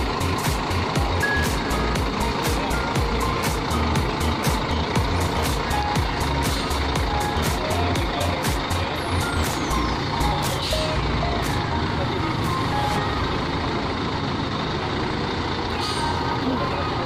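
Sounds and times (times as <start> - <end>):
bus engine running: 0.0 - 17.0
reversing alarm beeping: 1.2 - 1.8.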